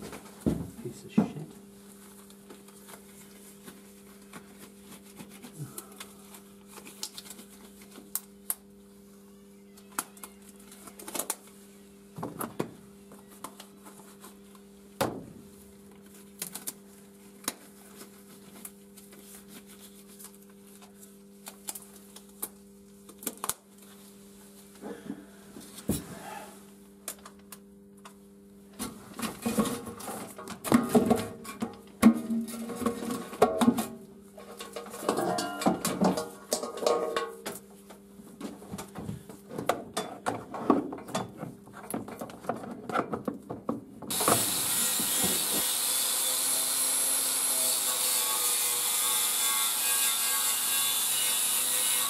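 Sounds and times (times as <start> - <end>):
low electrical hum: 0.0 - 52.0
latex gloves rustling and snapping: 2.0 - 8.7, 15.9 - 24.1.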